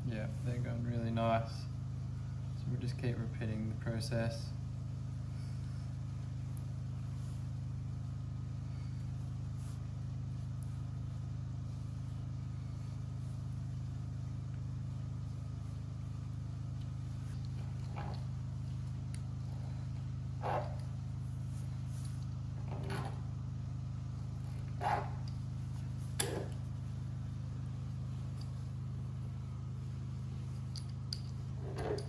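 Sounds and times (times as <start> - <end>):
steady low hum: 0.0 - 32.0
pasta cutter scraping dough: 24.8 - 25.2.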